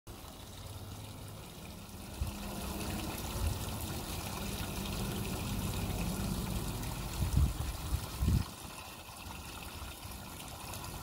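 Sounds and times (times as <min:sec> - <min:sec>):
water trickling over stones: 0:00.1 - 0:11.0
wind rumbling on microphone: 0:05.2 - 0:08.5.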